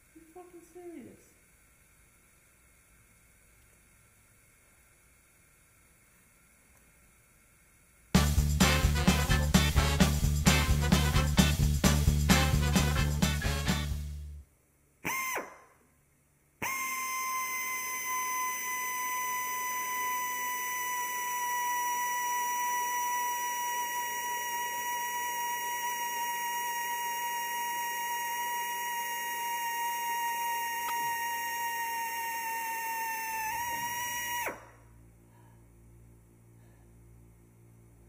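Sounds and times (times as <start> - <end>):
pneumatic tool whining: 15.0 - 15.7, 16.6 - 34.8.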